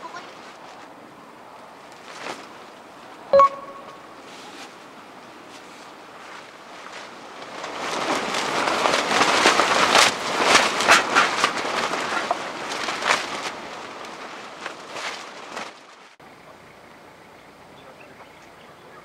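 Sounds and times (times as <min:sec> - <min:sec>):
tent fabric flapping: 0:00.0 - 0:03.2, 0:04.2 - 0:16.2.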